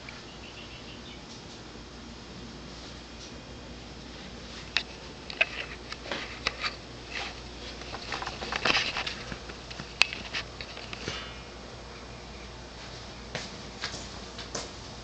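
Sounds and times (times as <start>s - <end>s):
camera handling clicks and rustles: 4.7s - 6.8s, 7.8s - 11.1s.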